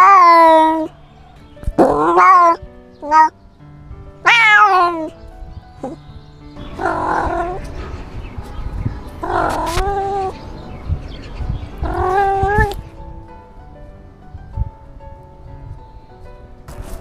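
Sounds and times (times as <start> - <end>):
cat meowing loudly: 0.0 - 0.9, 1.8 - 3.3, 4.2 - 5.1, 6.8 - 7.6, 9.2 - 10.4, 11.8 - 12.8.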